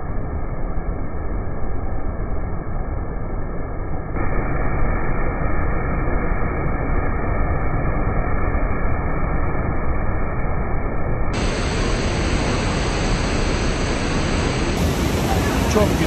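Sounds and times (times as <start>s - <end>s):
waterfall roaring: 11.4s - 16.0s.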